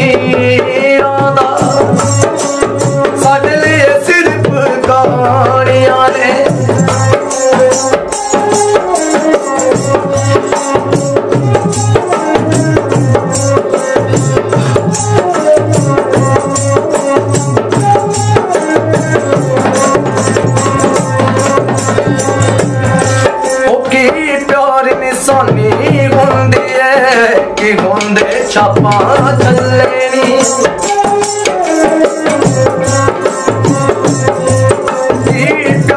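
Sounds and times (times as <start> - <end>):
small bells jingling: 19.5 - 23.2.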